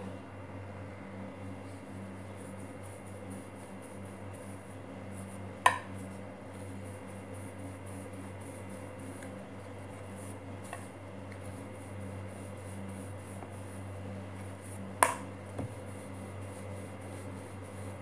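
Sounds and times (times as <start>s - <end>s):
steady low hum: 0.0s - 18.0s
rolling pin rolling dough: 1.7s - 18.0s.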